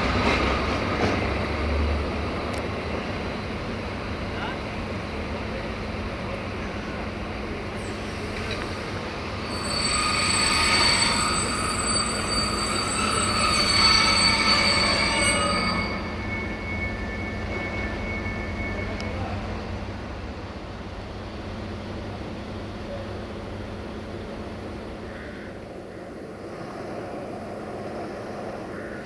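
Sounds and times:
train wheels squealing on rails: 0.0 - 20.4
train rumble: 0.0 - 29.0.

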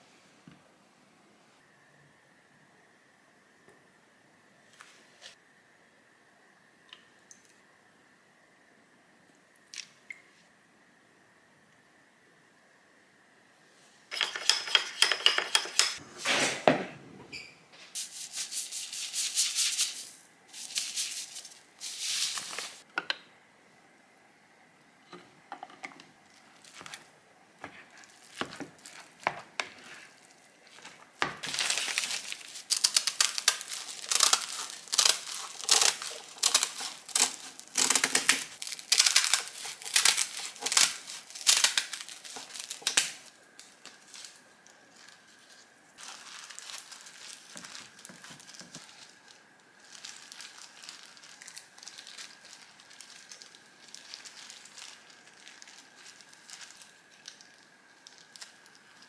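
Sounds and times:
faint high hum: 0.0 - 14.5
gloved hands rustling: 26.6 - 57.4.

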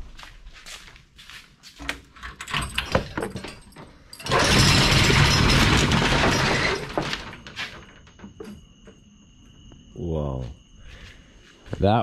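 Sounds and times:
roll-up door slats rattling: 2.1 - 8.3.

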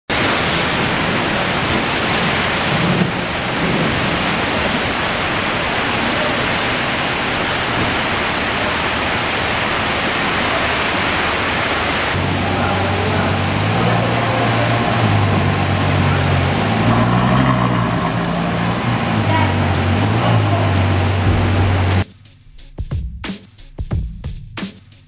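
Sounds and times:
rain on wet pavement: 0.1 - 22.1
car engine humming: 12.1 - 22.0.

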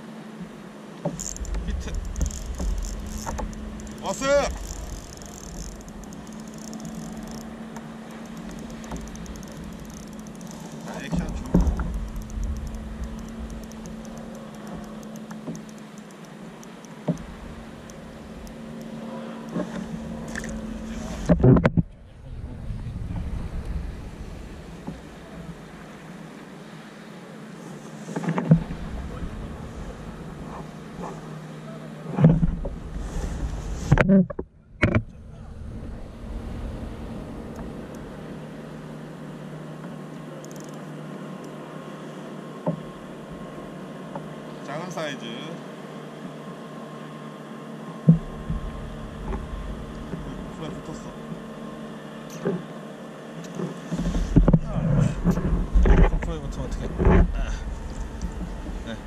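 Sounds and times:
water around kayak: 0.0 - 59.0
low hum: 0.4 - 44.7, 46.2 - 52.7, 53.4 - 59.0
thumps on boat: 1.0 - 6.9, 10.8 - 12.5, 21.1 - 22.0, 32.1 - 35.2, 53.5 - 58.9
fishing reel ticking: 1.2 - 18.9, 40.4 - 40.8
wind on microphone: 20.6 - 25.8, 54.0 - 59.0.

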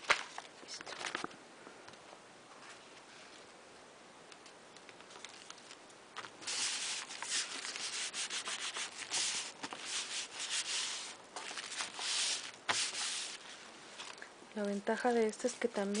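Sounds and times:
hands rubbing paper: 6.4 - 13.6.

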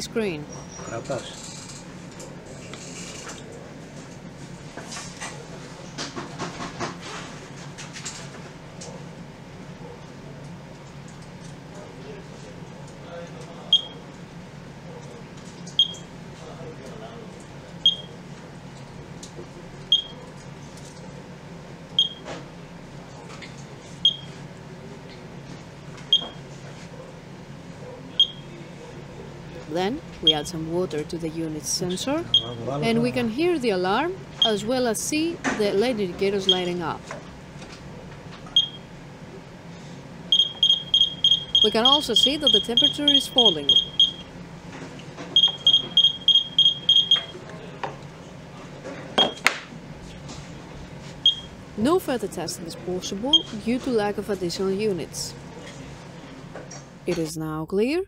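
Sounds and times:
high-pitched alarm beeps: 22.0 - 22.2, 24.0 - 24.3, 28.2 - 28.4, 31.9 - 32.6, 34.4 - 34.7, 36.4 - 36.7, 40.3 - 44.3, 45.4 - 47.4, 51.2 - 51.5, 53.3 - 53.6.

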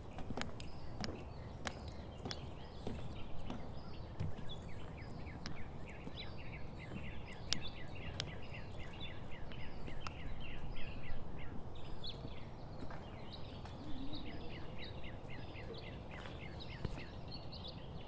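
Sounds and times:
birds chirping: 0.0 - 18.0
sharp clicks: 7.4 - 8.4.

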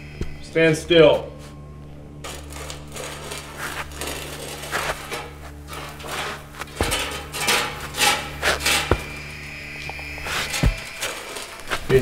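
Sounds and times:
low hum: 0.0 - 12.0
footsteps shuffling on concrete: 3.0 - 12.0
heavy thud: 6.2 - 9.2.

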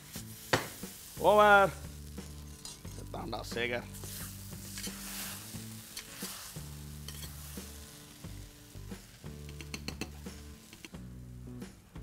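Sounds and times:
ladle stirring in a wok: 0.0 - 11.0
background music low notes: 0.0 - 12.0
sauce sizzling in a wok: 0.0 - 12.0.

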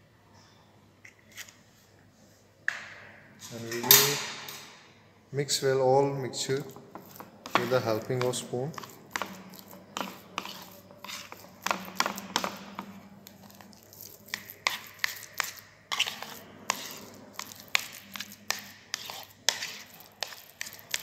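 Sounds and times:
spoon scraping and tapping bowl: 6.6 - 21.0.

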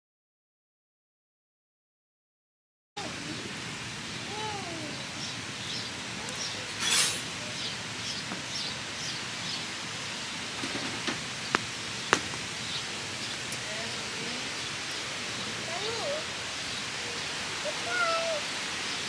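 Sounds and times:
wood fire popping: 10.6 - 13.7.

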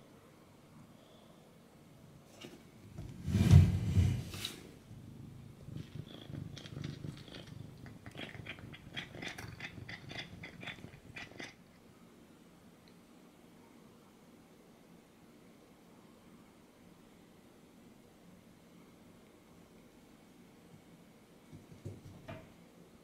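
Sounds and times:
cat crunching food: 5.6 - 11.6.

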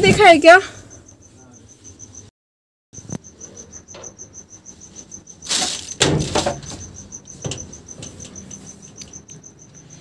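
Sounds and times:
cricket chirping: 0.0 - 2.3, 3.0 - 10.0
rustling and knocks: 5.4 - 9.2.

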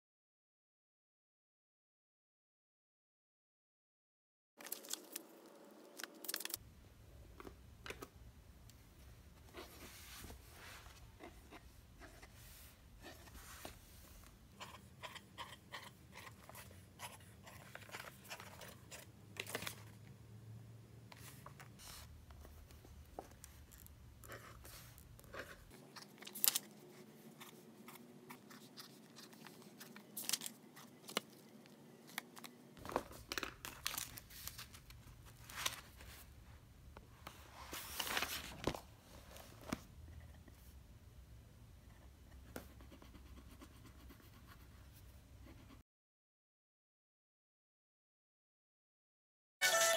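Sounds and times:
pages turning: 4.6 - 6.6, 16.4 - 20.0, 24.6 - 36.3, 37.3 - 39.9
paper rustling and sliding: 9.5 - 11.1, 32.1 - 36.3, 37.2 - 39.9
pen scratching on paper: 42.6 - 44.8.

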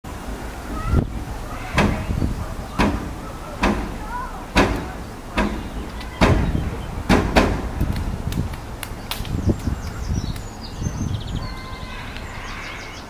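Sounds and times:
banging on metal door: 1.6 - 7.9.

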